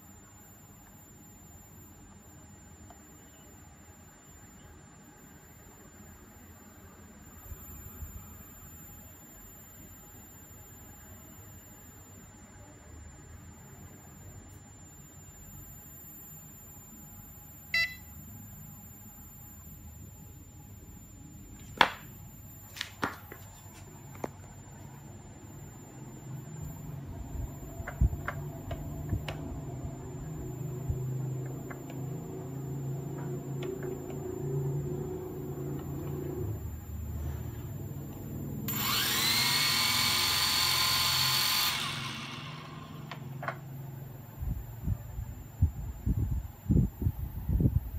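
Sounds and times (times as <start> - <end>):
low hum: 24.6 - 46.1
drone motors whining: 25.8 - 43.8.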